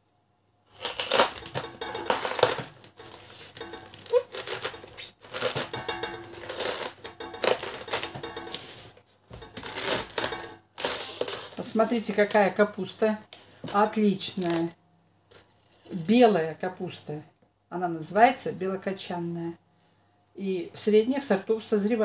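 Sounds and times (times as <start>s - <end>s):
knife cutting cabbage crunching: 0.7s - 12.5s.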